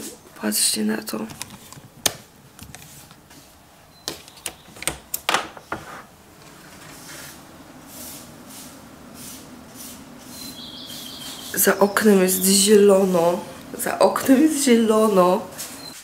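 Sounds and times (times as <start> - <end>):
faint hiss: 6.8 - 16.0.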